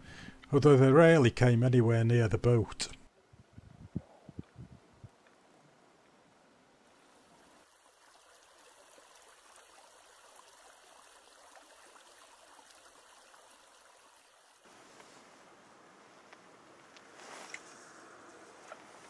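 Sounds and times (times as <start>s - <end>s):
faint river hiss: 5.0s - 19.0s.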